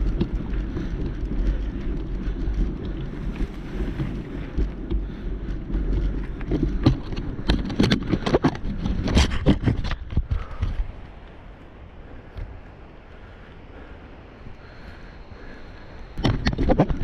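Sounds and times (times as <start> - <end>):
bike knocks and rattles: 0.0 - 10.9, 16.2 - 17.0
mountain bike rumble on trail: 0.0 - 17.0
wind buffeting microphone: 0.0 - 17.0.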